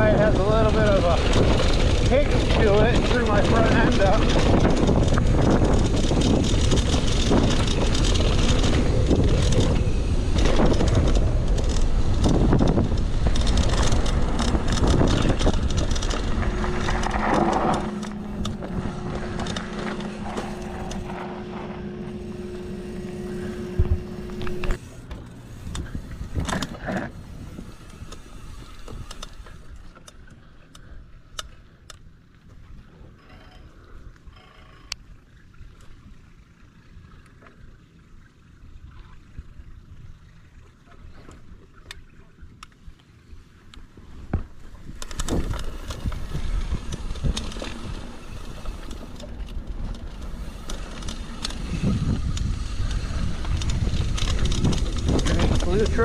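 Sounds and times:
bike tyre noise: 0:00.0 - 0:33.8, 0:34.6 - 0:56.0
steady hum: 0:04.8 - 0:29.8.

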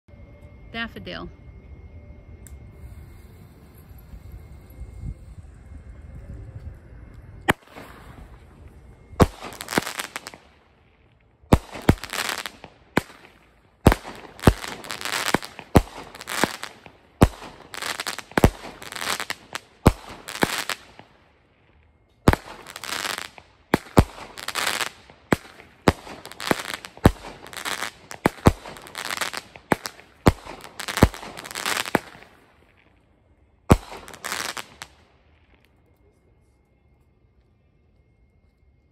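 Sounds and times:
firework bursts crackling: 0:07.5 - 0:21.6, 0:22.2 - 0:33.0, 0:33.7 - 0:35.2.

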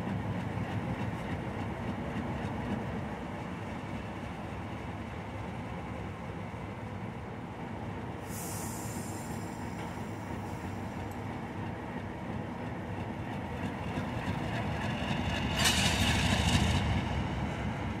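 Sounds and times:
diesel locomotive rumbling past: 0:00.0 - 0:18.0.

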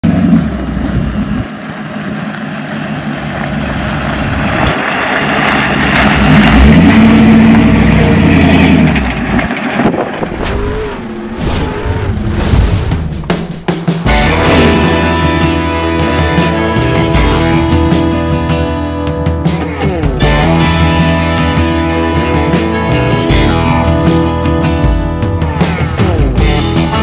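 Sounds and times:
truck engine driving by: 0:00.0 - 0:19.0.

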